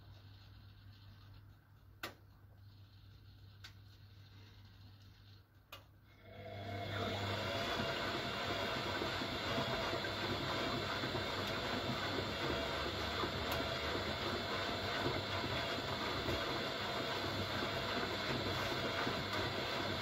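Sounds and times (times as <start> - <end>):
washing machine running: 6.1 - 20.0.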